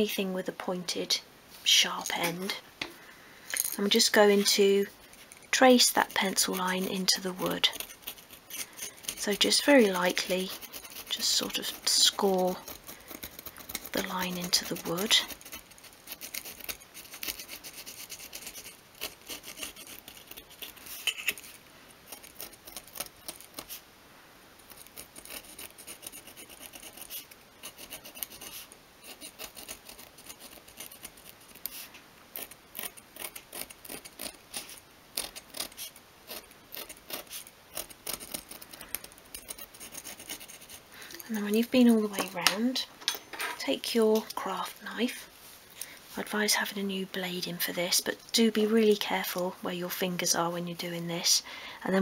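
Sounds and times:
metal scribe scratching wood: 0:03.8 - 0:23.8, 0:24.7 - 0:40.9.

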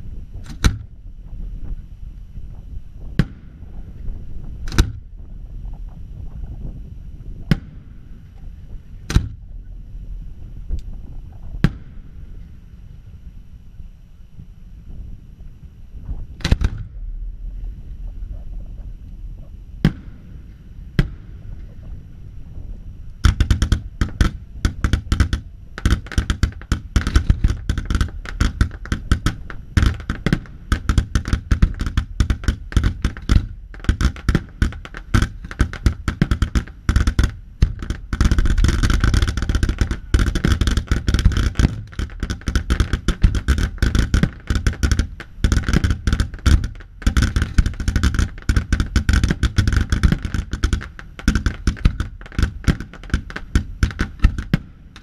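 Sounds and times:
firework barrage with crackling: 0:00.0 - 0:13.5, 0:14.4 - 0:55.0
firework bangs: 0:11.4 - 0:12.4, 0:16.4 - 0:17.4, 0:19.8 - 0:22.2, 0:23.2 - 0:55.0.

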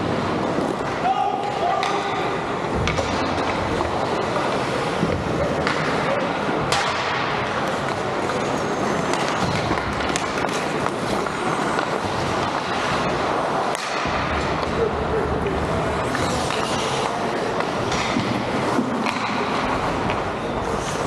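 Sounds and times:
skates scraping on ice: 0:00.0 - 0:21.0
murmur of voices: 0:10.9 - 0:21.0.

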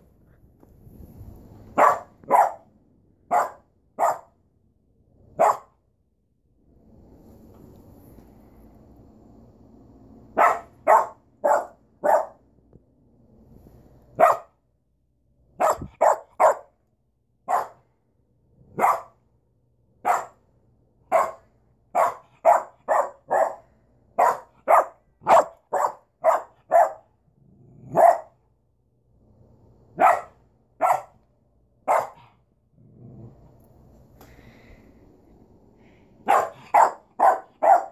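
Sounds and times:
puppy barking: 0:01.8 - 0:02.7, 0:03.3 - 0:04.3, 0:05.4 - 0:05.8, 0:10.4 - 0:12.4, 0:14.2 - 0:14.5, 0:15.6 - 0:16.8, 0:17.5 - 0:17.8, 0:18.8 - 0:19.2, 0:20.0 - 0:20.4, 0:21.1 - 0:23.6, 0:24.2 - 0:27.1, 0:27.9 - 0:28.4, 0:30.0 - 0:31.2, 0:31.8 - 0:32.4, 0:36.2 - 0:37.9.

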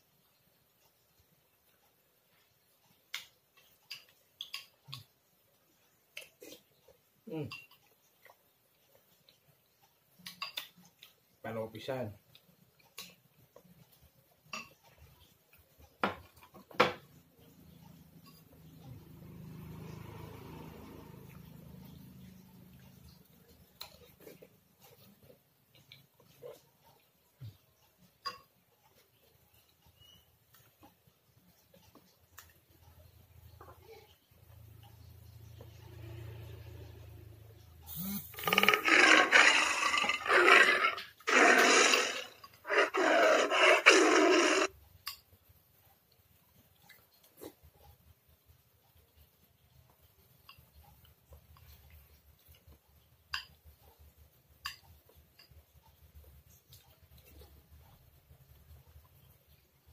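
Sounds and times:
soft eating sounds: 0:00.0 - 0:59.9
motor vehicle passing: 0:18.0 - 0:23.3, 0:34.6 - 0:44.7.

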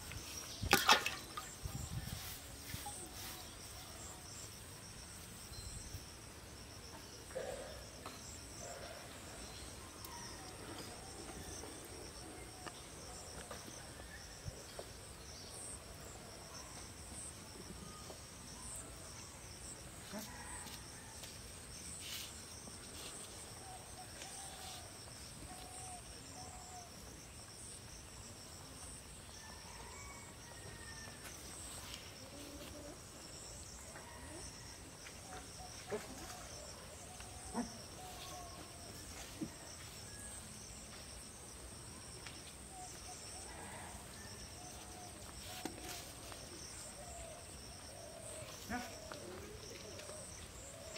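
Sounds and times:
insect chorus drone: 0:00.0 - 0:50.9.

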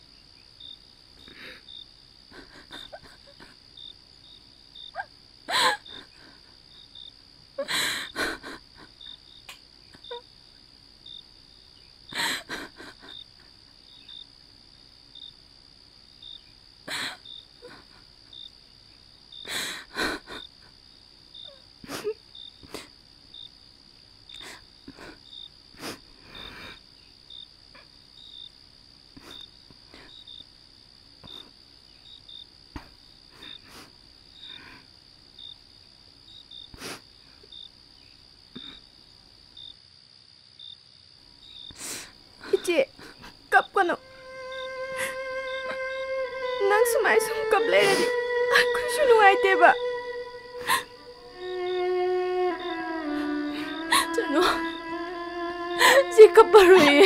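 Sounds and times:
crickets chirping: 0:00.0 - 0:57.0
woman crying: 0:02.3 - 0:03.5, 0:05.0 - 0:06.5, 0:07.6 - 0:09.0, 0:12.2 - 0:13.2, 0:16.9 - 0:18.0, 0:19.5 - 0:20.5, 0:42.4 - 0:57.0.

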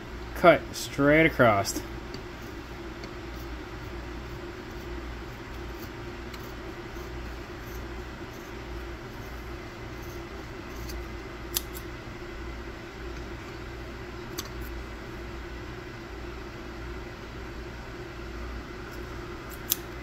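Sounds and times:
low background hum: 0:00.0 - 0:20.0
scissors snipping wick: 0:10.8 - 0:11.9, 0:14.3 - 0:14.7, 0:19.5 - 0:19.9.

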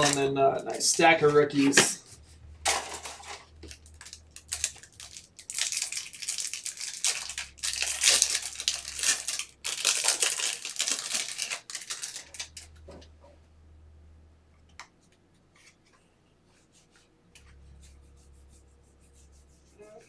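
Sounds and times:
card packaging tearing and crinkling: 0:00.0 - 0:02.0, 0:02.6 - 0:12.8.

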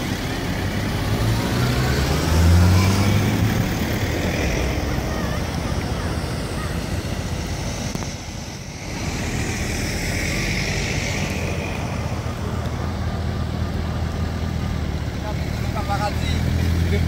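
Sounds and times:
cars rumbling on road: 0:00.0 - 0:17.0
passing hiss: 0:02.7 - 0:13.2.

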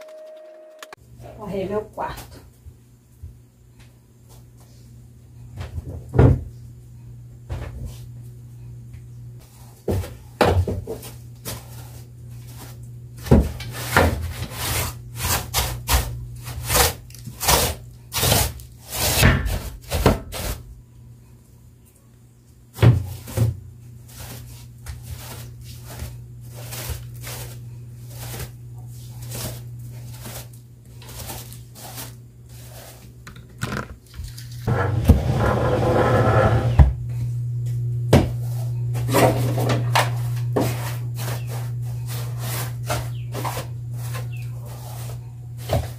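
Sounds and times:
steady low hum: 0:00.1 - 0:45.9
mop on tiled floor: 0:22.8 - 0:33.5, 0:34.2 - 0:36.8, 0:38.3 - 0:45.9.

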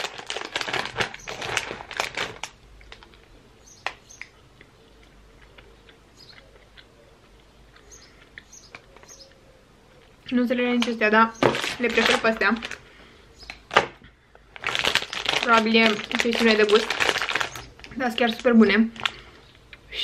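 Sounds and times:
plastic snack packet crinkling: 0:00.0 - 0:04.4, 0:10.6 - 0:12.9, 0:13.5 - 0:19.4
faint chewing: 0:02.4 - 0:10.3.

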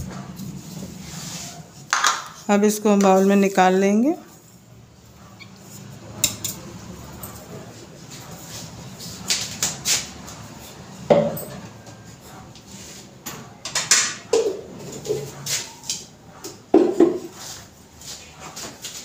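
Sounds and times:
dishes and utensils clattering: 0:05.6 - 0:07.7, 0:11.1 - 0:12.1, 0:13.3 - 0:17.4.

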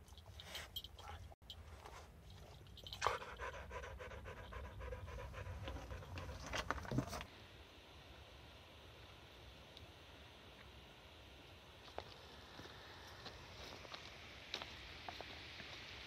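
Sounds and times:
dog panting: 0:02.4 - 0:06.7.

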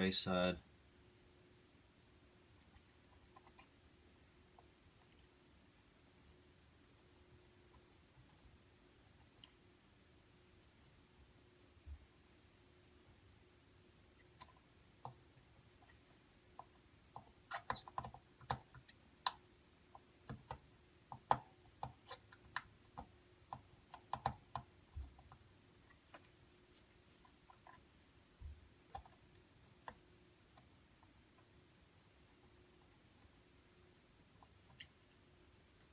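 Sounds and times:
light clicks and taps desoldering: 0:13.0 - 0:33.4.

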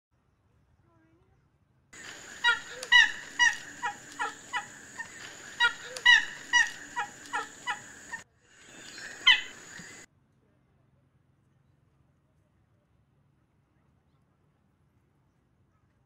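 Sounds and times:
hornbill calling: 0:02.0 - 0:10.1.

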